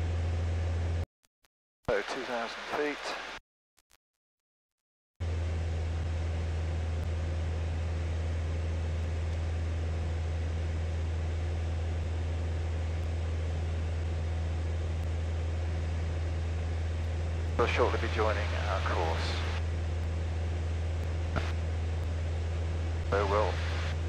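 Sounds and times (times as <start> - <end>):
light aircraft engine droning: 5.2 - 24.0.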